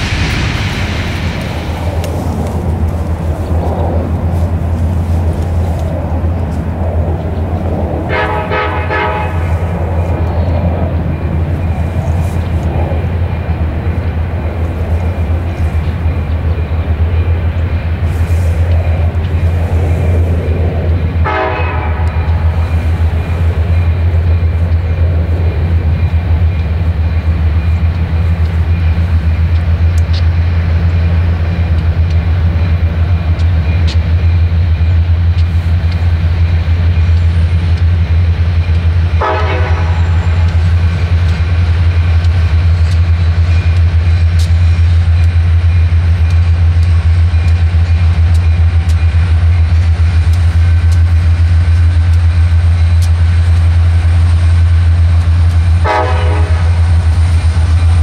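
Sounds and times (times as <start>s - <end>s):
freight train rumbling: 0.0s - 58.0s
train horn blast: 8.1s - 9.7s, 21.2s - 22.6s, 39.2s - 40.6s, 55.8s - 57.0s.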